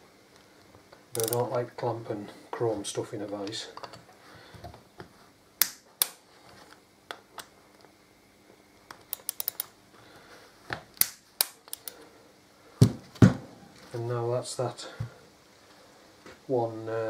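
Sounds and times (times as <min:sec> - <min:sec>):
ratchet clicks: 0:01.1 - 0:01.5, 0:09.1 - 0:09.7, 0:11.0 - 0:12.0
torque wrench clicks: 0:01.1 - 0:01.5, 0:08.9 - 0:09.7, 0:11.0 - 0:12.0.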